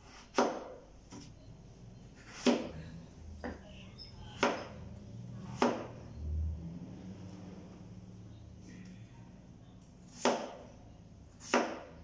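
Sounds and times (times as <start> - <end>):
meat cleaver chopping on cutting board: 5.6 - 5.9, 11.4 - 12.0.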